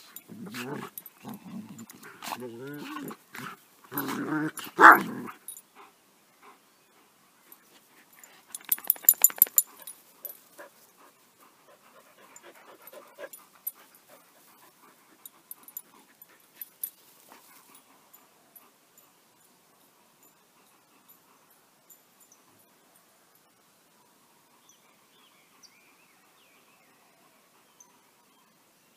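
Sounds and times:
dog panting: 0:09.6 - 0:18.1.

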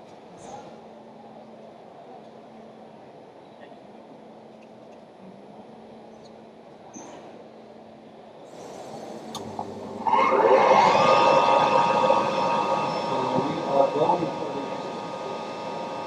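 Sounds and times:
vacuum blower rushing whine: 0:08.8 - 0:16.0.

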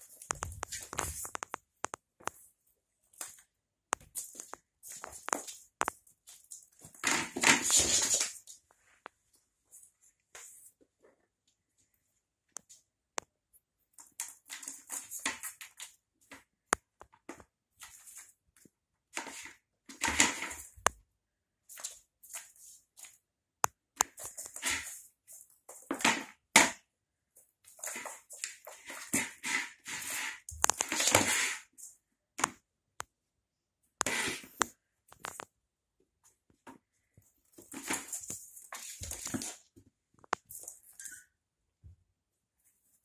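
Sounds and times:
cat scratching plastic litter tray: 0:19.1 - 0:20.8, 0:27.7 - 0:31.7, 0:34.0 - 0:34.6.

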